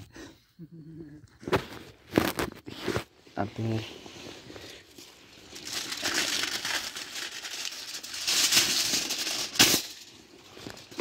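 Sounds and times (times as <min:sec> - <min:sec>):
wrapping crinkling and rustling: 0:04.8 - 0:11.0.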